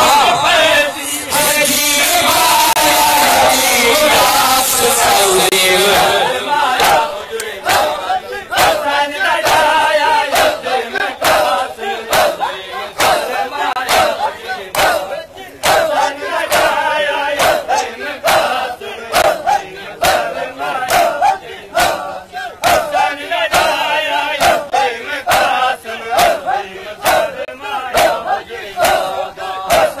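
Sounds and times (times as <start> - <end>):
crowd of men chanting: 0.0 - 30.0
chest beating slaps in unison: 6.8 - 18.6, 19.2 - 30.0.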